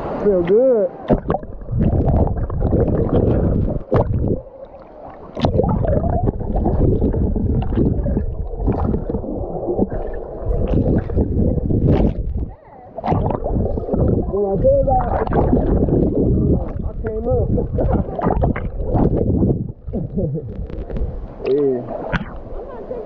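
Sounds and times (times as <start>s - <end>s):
muffled underwater gurgling: 0.1s - 23.0s.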